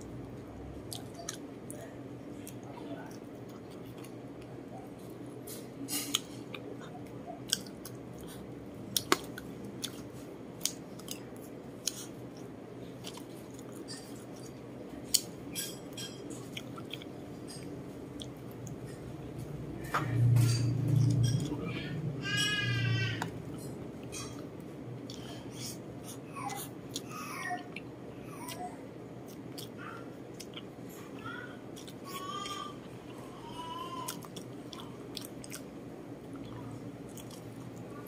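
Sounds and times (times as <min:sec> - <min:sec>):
chewing and lip smacking: 0:00.9 - 0:01.8, 0:02.4 - 0:19.0, 0:29.2 - 0:33.2, 0:34.1 - 0:37.8.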